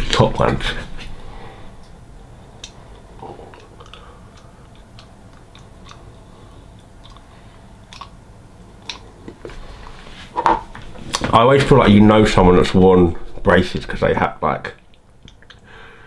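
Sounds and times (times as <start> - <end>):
wet mouth sounds: 2.6 - 8.2, 8.8 - 9.3, 14.8 - 15.7.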